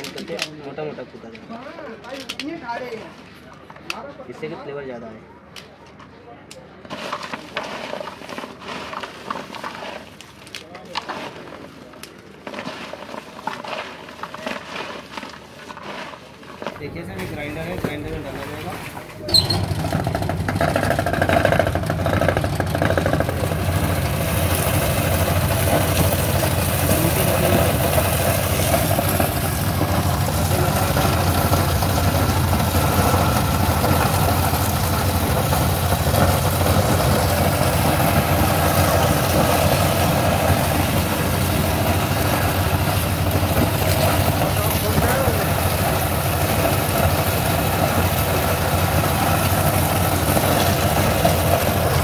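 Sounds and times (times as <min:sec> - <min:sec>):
electric spice grinder running: 0:19.5 - 0:52.0.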